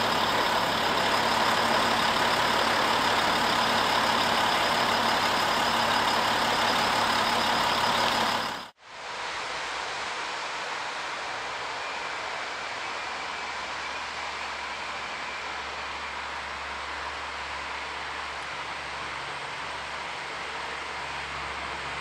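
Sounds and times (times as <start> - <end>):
diesel locomotive engine running: 0.0 - 22.0.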